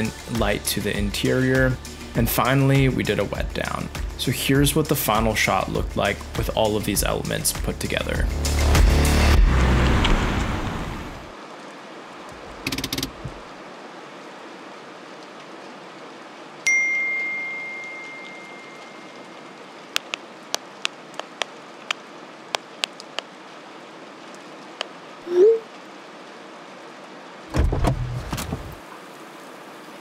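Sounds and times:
music: 0.0 - 9.7
bell-like ding: 16.7 - 19.3
light irregular ticks: 19.9 - 23.3.

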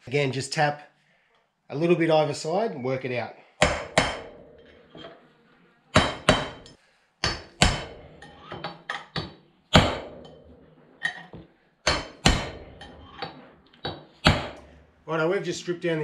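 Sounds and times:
hammer tapping steel punch: 3.6 - 4.5, 6.0 - 10.4, 11.9 - 14.7.

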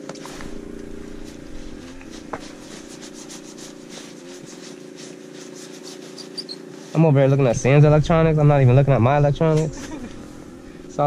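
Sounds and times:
steady low hum: 0.2 - 5.4, 7.0 - 11.0
fishing rod and reel rustling: 0.2 - 6.4.

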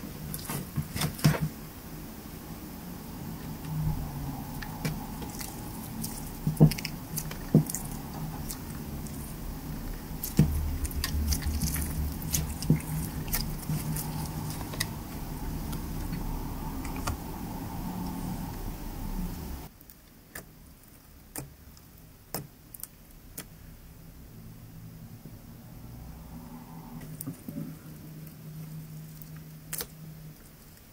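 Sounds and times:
low hum: 1.5 - 19.7.

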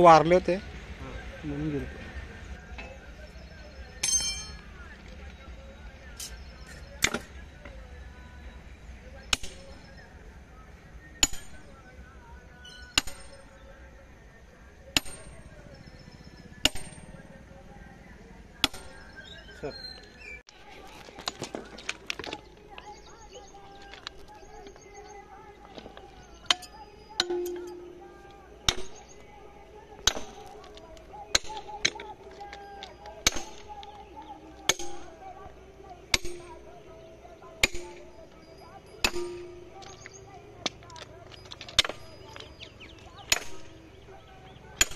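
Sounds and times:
hammer striking metal clip: 4.0 - 4.6, 26.5 - 28.1, 34.7 - 35.1, 39.0 - 40.1, 43.3 - 43.7.

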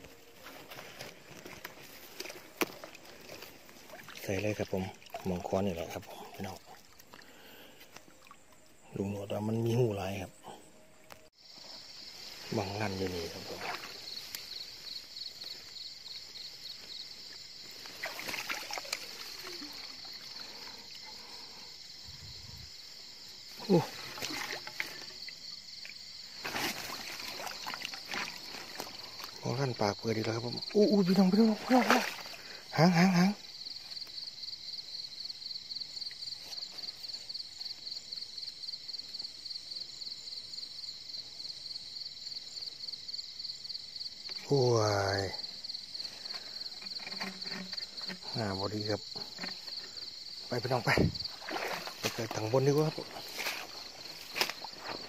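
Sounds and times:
wet grass rustling: 0.0 - 8.7, 11.7 - 21.6, 23.5 - 32.6, 45.9 - 55.0
night insects chirping: 0.0 - 55.0
shallow water sloshing: 0.3 - 8.7, 17.8 - 21.5, 23.8 - 25.3, 26.4 - 29.4, 31.1 - 32.6, 46.1 - 48.5, 50.8 - 55.0.

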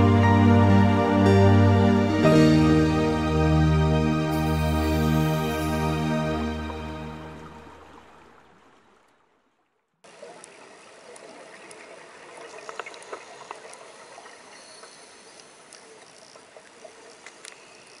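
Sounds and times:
soft music: 0.0 - 8.4
underwater hiss with clicks: 10.4 - 18.0.

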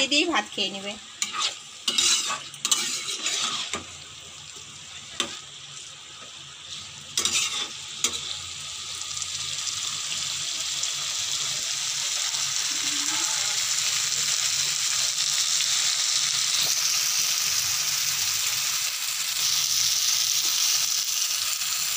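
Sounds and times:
oil sizzling: 0.0 - 21.9
spatula scraping pan: 1.2 - 4.0, 6.7 - 8.4.

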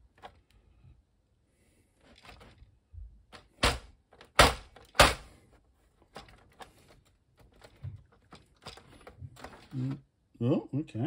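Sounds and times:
loud thumps: 3.3 - 5.4.

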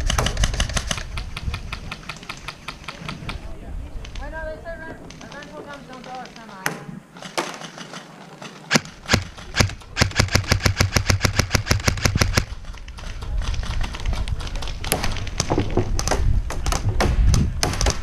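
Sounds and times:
airsoft gun shots: 8.7 - 12.5.

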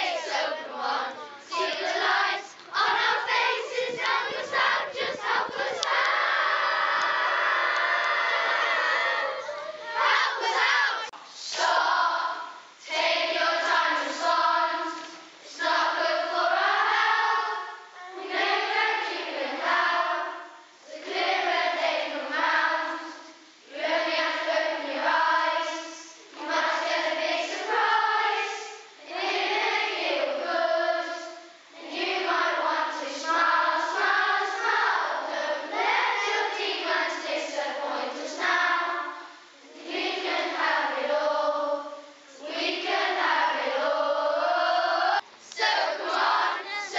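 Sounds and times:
children's choir singing: 0.0 - 46.9.

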